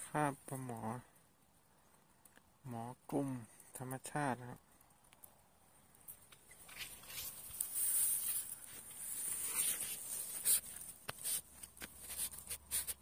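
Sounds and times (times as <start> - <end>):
handling rustles: 6.1 - 13.0.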